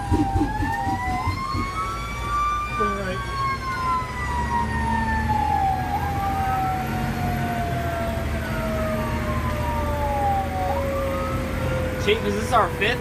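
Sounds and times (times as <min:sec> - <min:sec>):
truck engine running: 0:00.0 - 0:02.4
siren sweeping down and up: 0:00.0 - 0:12.8
fire engine siren falling: 0:00.0 - 0:13.0.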